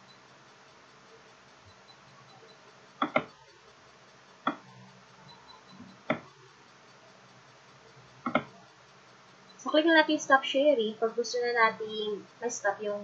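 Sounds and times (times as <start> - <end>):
computer mouse clicks: 2.4 - 3.5, 4.4 - 6.4, 8.2 - 8.6.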